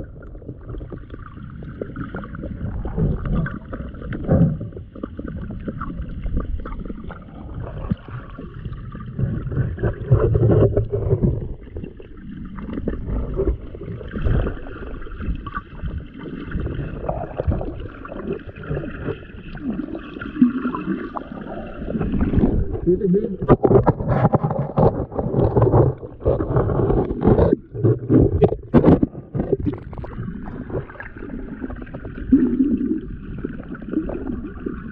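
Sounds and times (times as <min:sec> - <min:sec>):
underwater sloshing and rumbling: 0:00.0 - 0:34.9.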